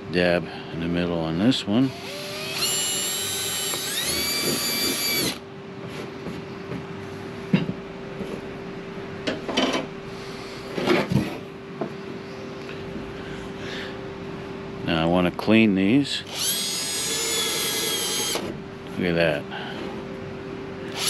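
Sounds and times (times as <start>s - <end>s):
steady low hum: 0.0s - 21.0s
cordless drill whine: 1.9s - 5.4s, 16.3s - 18.5s.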